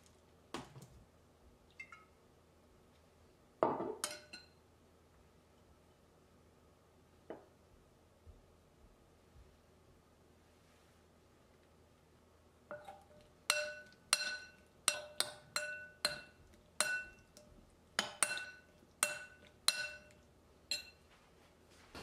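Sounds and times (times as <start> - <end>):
spoon clinking on glass bowl: 4.0 - 4.6, 12.7 - 21.0.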